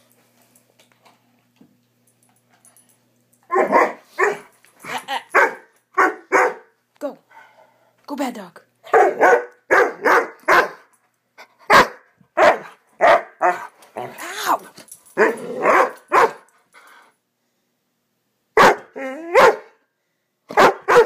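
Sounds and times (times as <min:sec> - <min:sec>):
dog barking: 0:03.5 - 0:04.5, 0:05.4 - 0:06.7, 0:08.9 - 0:10.9, 0:11.7 - 0:13.7, 0:15.2 - 0:16.5, 0:18.6 - 0:19.8, 0:20.5 - 0:21.0.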